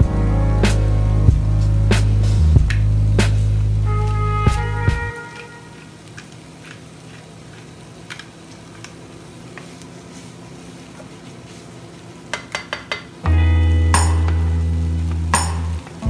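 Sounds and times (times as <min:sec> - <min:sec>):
background music: 0:00.0 - 0:05.4, 0:13.3 - 0:16.0.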